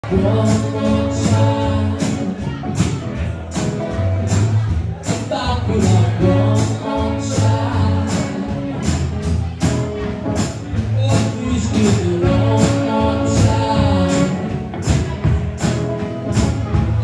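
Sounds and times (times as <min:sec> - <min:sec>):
strummed guitars: 0:00.0 - 0:17.0
saxophone melody: 0:00.1 - 0:02.6.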